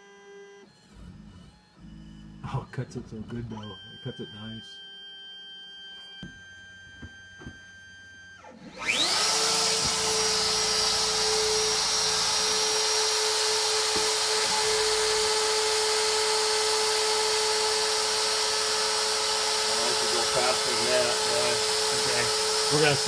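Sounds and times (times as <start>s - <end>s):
cnc router spindle whine: 0.0s - 23.0s.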